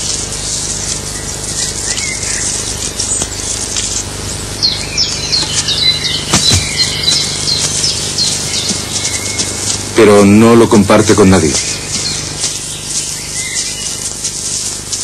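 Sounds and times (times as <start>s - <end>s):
small birds chirping: 0.0s - 15.0s
steady hiss and low hum: 0.0s - 15.0s.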